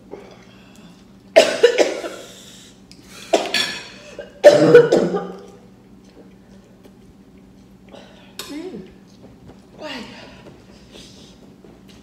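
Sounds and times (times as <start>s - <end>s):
woman coughing hard: 1.4s - 2.3s, 3.3s - 5.4s.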